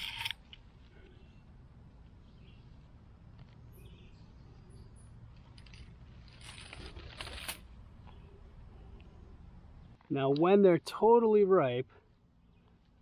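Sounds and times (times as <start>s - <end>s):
grass and leaves rustling: 5.3s - 8.2s.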